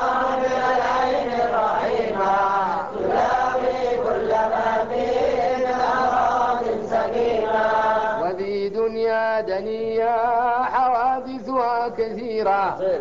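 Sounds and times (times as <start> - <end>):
man chanting: 8.2 - 13.0.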